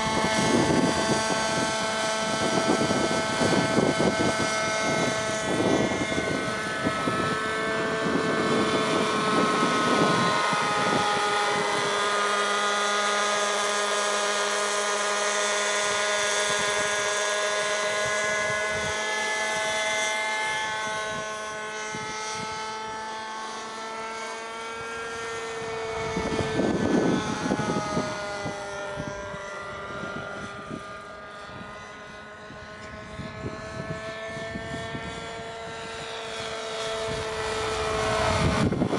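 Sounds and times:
model helicopter engine and rotor whine: 0.0 - 38.9.

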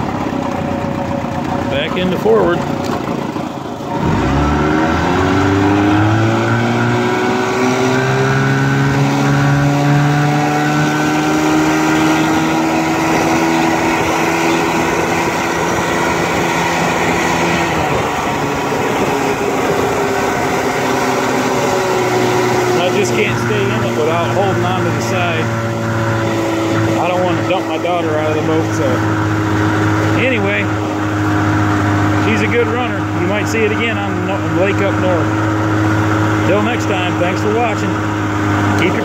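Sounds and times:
outboard motor revving: 0.0 - 39.0
water and wind noise: 1.2 - 39.0.

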